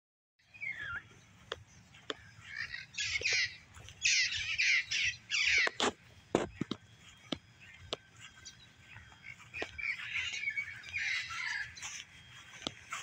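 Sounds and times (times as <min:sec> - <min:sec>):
crow cawing: 0:02.4 - 0:05.8.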